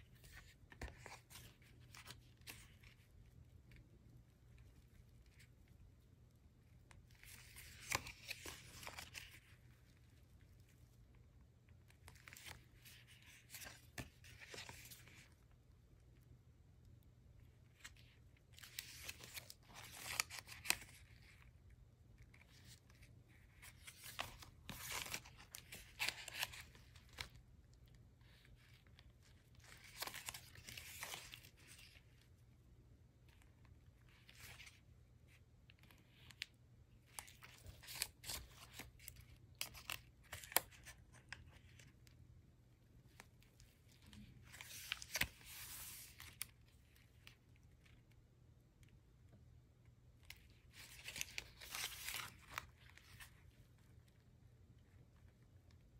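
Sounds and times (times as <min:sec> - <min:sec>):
paper rustling: 0:00.0 - 0:03.3, 0:06.9 - 0:10.9, 0:11.9 - 0:15.5, 0:17.6 - 0:21.6, 0:22.2 - 0:27.4, 0:28.2 - 0:32.2, 0:34.0 - 0:42.1, 0:43.1 - 0:48.0, 0:50.3 - 0:53.8.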